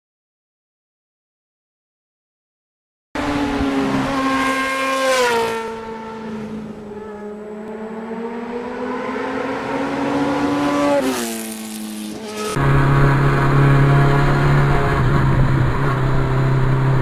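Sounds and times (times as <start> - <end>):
motorcycle engine running: 10.9 - 17.0.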